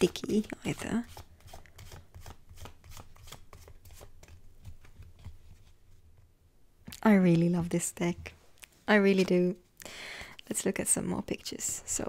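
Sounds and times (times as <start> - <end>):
cards being shuffled: 0.1 - 5.8.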